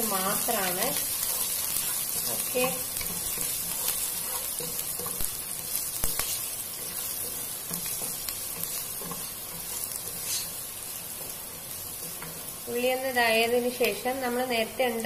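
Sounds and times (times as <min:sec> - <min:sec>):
onion sizzling in a pot: 0:00.0 - 0:15.0
spatula tapping a pan: 0:01.2 - 0:10.4.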